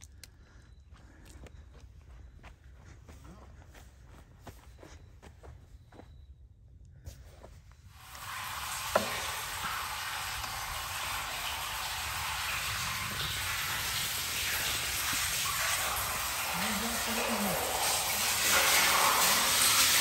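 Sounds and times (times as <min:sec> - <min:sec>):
hose water splashing into tank: 0:08.0 - 0:20.0.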